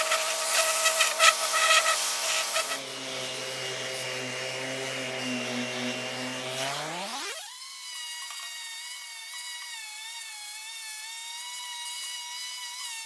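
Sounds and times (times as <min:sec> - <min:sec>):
orbital sander on metal: 0:00.0 - 0:07.6.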